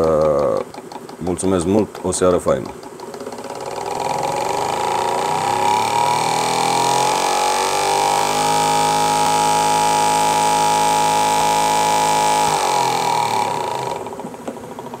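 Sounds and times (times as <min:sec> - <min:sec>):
electric motor whine: 0:03.1 - 0:15.0.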